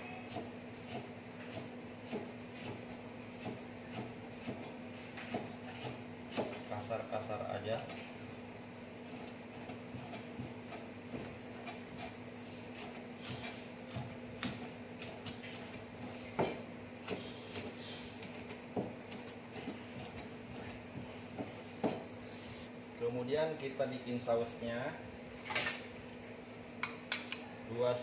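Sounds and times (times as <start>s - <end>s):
steady low hum: 0.0s - 28.0s
knife chopping on cutting board: 0.3s - 6.6s, 9.0s - 22.1s.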